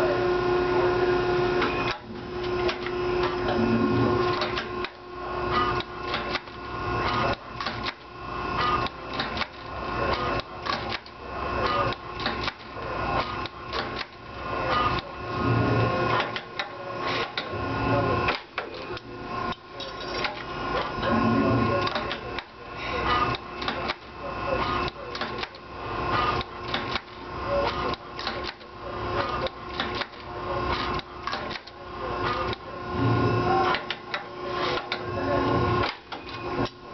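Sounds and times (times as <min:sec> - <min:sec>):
whirring motor: 0:00.0 - 0:36.9
machine clicks and knocks: 0:05.8 - 0:08.1, 0:08.7 - 0:14.2, 0:16.1 - 0:17.5, 0:26.3 - 0:32.6, 0:35.8 - 0:36.8.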